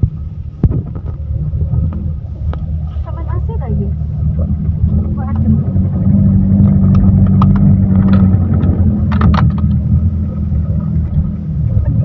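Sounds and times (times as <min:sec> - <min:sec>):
vehicle engine running: 0:00.0 - 0:12.0
knocks and rattles: 0:04.4 - 0:10.0.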